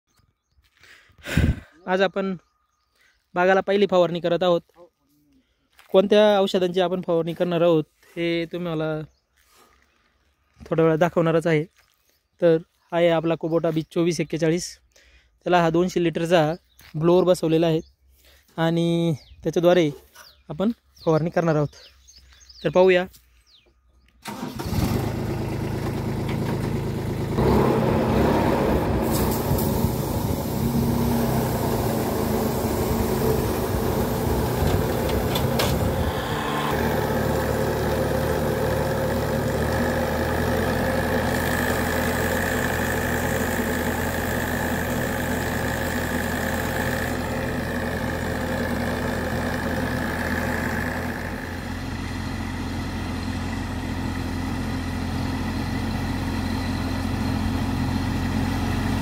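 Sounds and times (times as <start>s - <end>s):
diesel tractor engine running: 24.1s - 59.0s.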